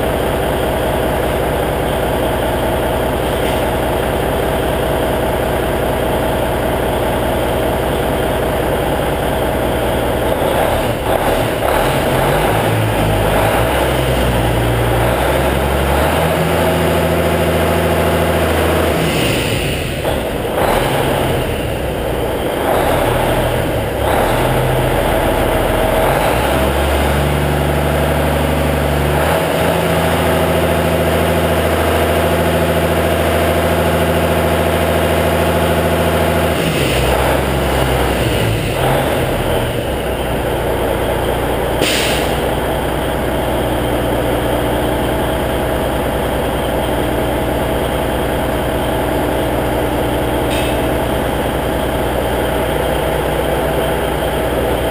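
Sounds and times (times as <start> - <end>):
diesel truck engine idling: 0.0 - 54.9
brief hiss: 41.8 - 42.4.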